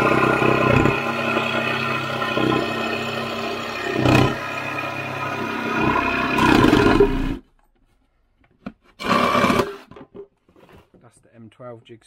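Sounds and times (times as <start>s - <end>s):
jigsaw cutting wood: 0.0s - 7.4s, 9.0s - 9.9s.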